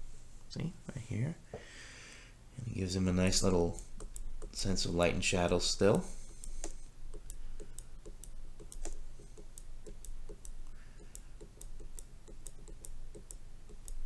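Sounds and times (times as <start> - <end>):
stylus tapping on glass screen: 4.0 - 4.6, 6.3 - 14.0.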